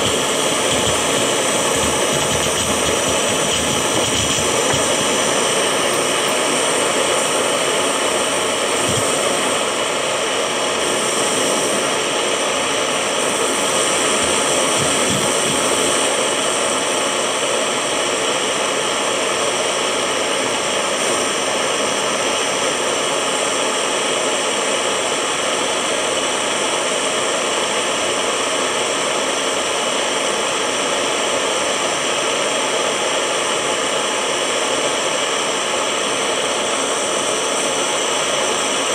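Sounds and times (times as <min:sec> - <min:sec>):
gas torch hissing: 0:00.0 - 0:24.9.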